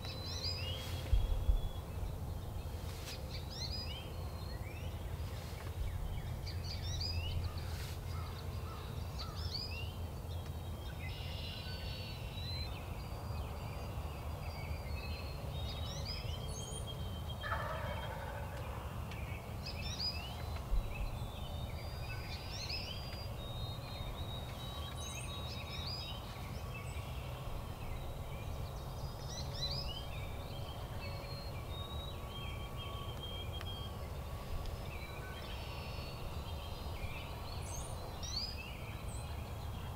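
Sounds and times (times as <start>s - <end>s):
songbirds chirping: 0.0s - 39.9s
turkey gobbling: 17.4s - 18.5s.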